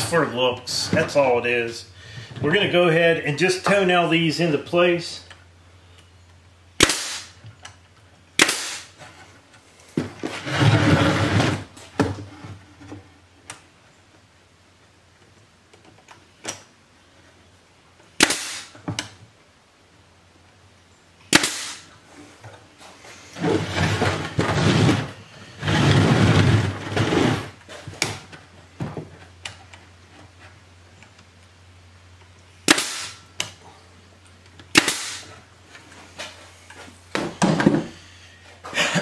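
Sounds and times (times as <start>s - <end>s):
noisy bursts: 6.4s - 7.5s, 21.2s - 29.0s, 31.5s - 33.4s, 34.7s - 37.9s
pneumatic nailer firing: 6.8s - 7.4s, 8.4s - 9.0s, 18.2s - 19.1s, 21.3s - 21.9s, 32.6s - 33.2s, 34.7s - 35.4s.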